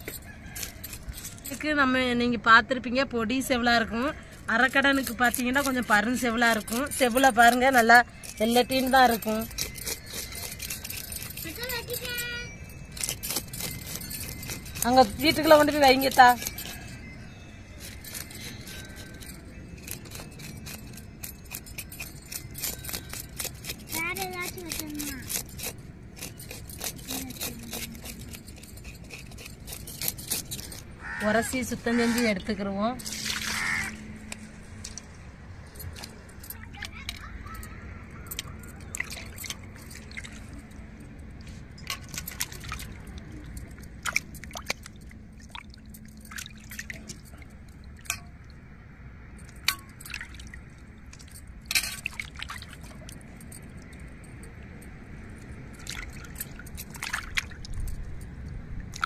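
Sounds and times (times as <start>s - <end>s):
knife scraping fish scales: 4.7s - 35.0s.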